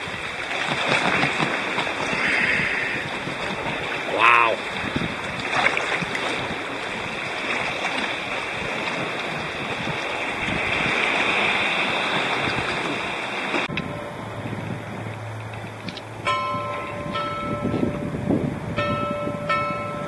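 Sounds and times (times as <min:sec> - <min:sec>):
water splashing against kayak: 0:00.0 - 0:16.2
low steady hum: 0:13.6 - 0:20.0.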